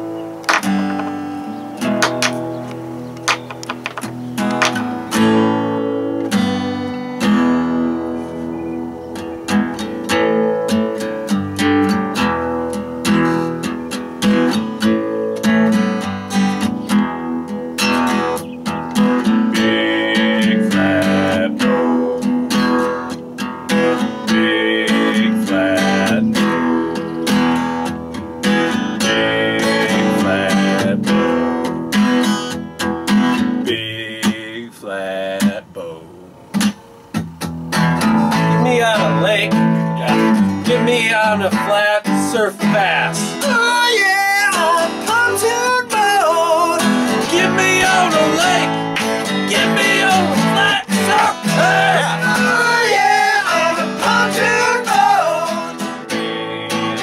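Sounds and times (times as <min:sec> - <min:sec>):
acoustic guitar strumming: 0:00.0 - 0:57.0.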